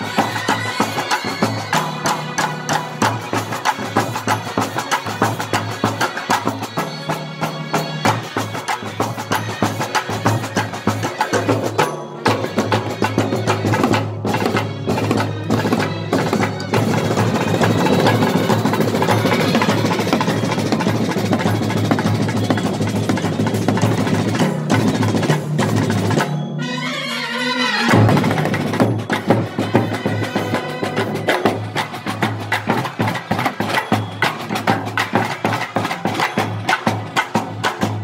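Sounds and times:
brass band playing: 0:00.0 - 0:24.3, 0:26.6 - 0:33.6
rapid snare drum beating: 0:08.0 - 0:26.3, 0:27.9 - 0:38.0
trumpets and euphonium playing: 0:26.6 - 0:28.6, 0:29.4 - 0:32.2.

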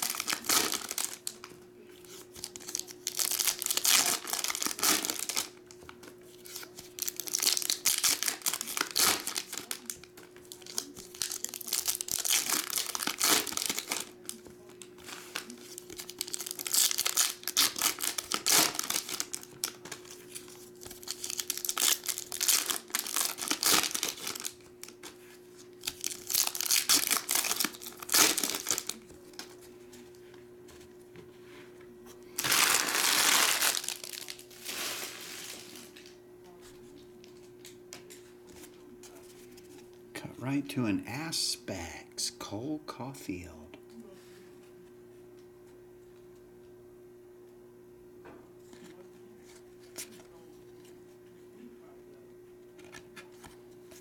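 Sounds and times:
foil wrappers crinkling and tearing: 0:00.0 - 0:29.7, 0:32.4 - 0:36.2.

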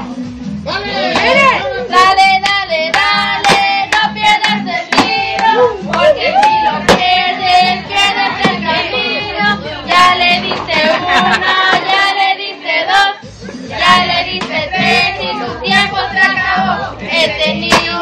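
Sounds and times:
music with steady beat: 0:00.0 - 0:12.3, 0:13.1 - 0:18.0
children and women singing: 0:00.7 - 0:18.0
sharp clap-like hits: 0:02.4 - 0:07.2.

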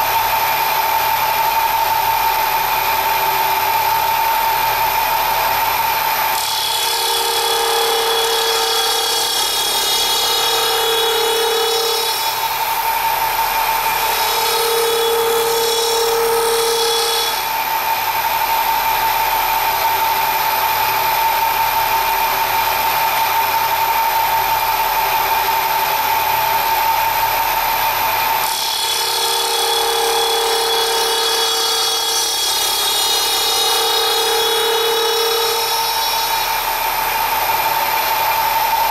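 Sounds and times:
gear cutter machine whine: 0:00.0 - 0:38.9.

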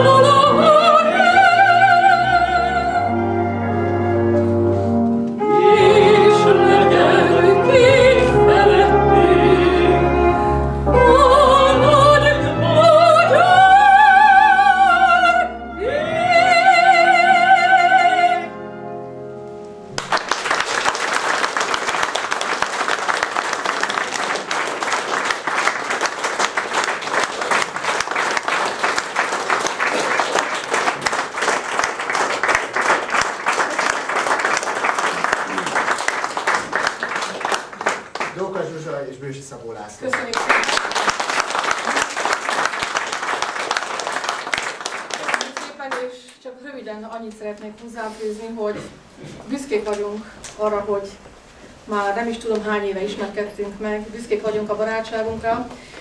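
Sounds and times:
woman and man singing operatic duet: 0:00.0 - 0:03.5, 0:05.4 - 0:18.5
instrumental accompaniment: 0:00.0 - 0:20.2
audience applauding: 0:19.9 - 0:38.9, 0:40.0 - 0:46.1.

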